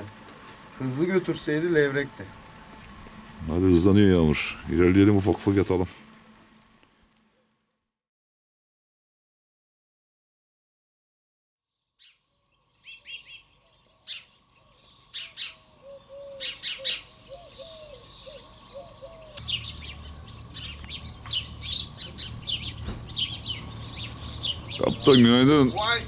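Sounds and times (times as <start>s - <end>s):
sparrows chirping: 0.0s - 5.7s, 11.6s - 26.0s
low background rumble: 19.4s - 26.0s.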